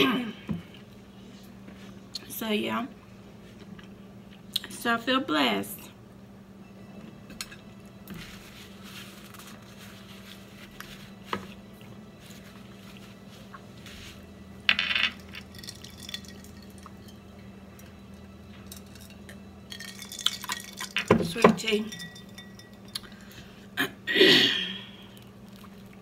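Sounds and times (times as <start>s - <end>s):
steady low hum: 0.0s - 26.0s
person eating and drinking: 24.6s - 26.0s.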